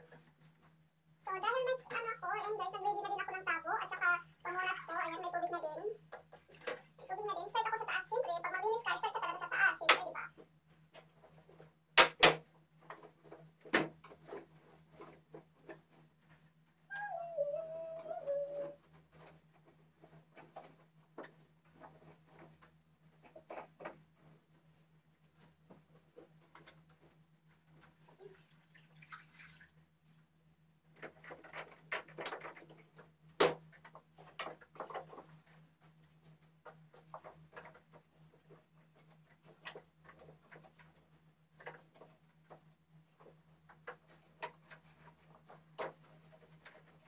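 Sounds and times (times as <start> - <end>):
water splashing and clattering: 6.1 - 7.0, 28.0 - 29.8.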